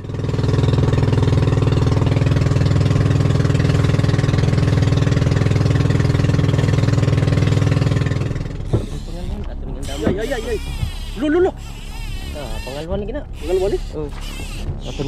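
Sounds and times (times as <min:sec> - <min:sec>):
boat engine running: 0:00.0 - 0:15.0.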